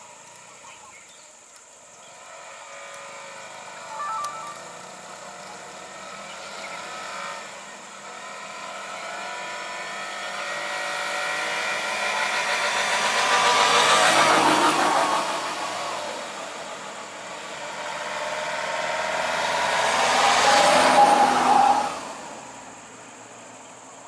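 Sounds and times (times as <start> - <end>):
cars passing on road: 0.0 - 24.0
motorcycle passing: 1.9 - 22.2
two-tone beep: 3.9 - 4.8.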